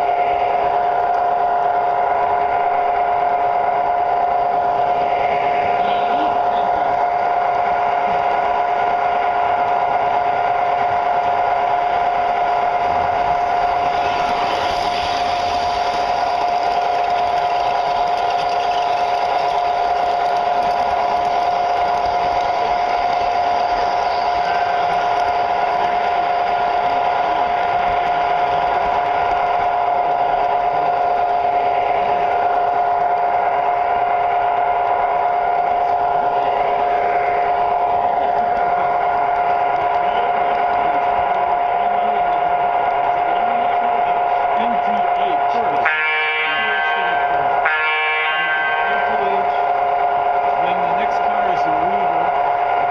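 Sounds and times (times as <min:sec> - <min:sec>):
train wheels rolling on rails: 0:00.0 - 0:52.9
electric motor whine: 0:10.8 - 0:45.7.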